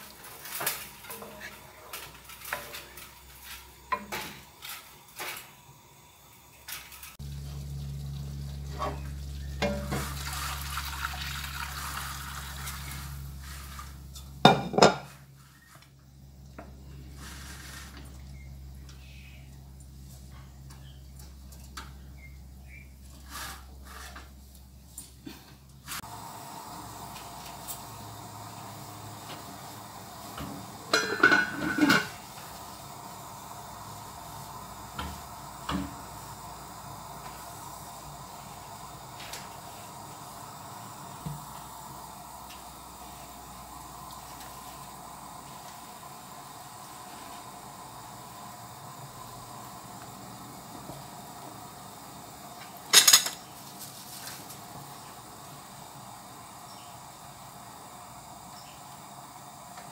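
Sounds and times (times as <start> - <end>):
water hissing in hot wok: 0.0 - 20.0, 22.5 - 24.8, 25.8 - 59.9
low hum: 7.0 - 14.4
metal lid clattering on a wok: 14.5 - 15.1, 30.9 - 32.2, 52.9 - 53.4.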